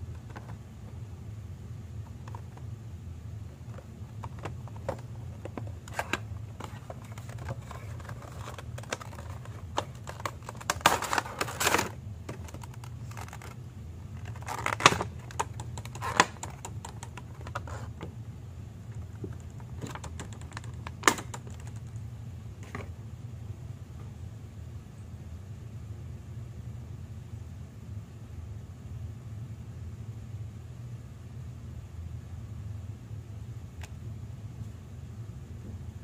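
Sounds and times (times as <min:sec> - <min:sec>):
stiff plastic crackling: 0:02.0 - 0:02.7, 0:03.5 - 0:18.1, 0:18.9 - 0:22.0
cardboard box being handled: 0:03.6 - 0:13.6.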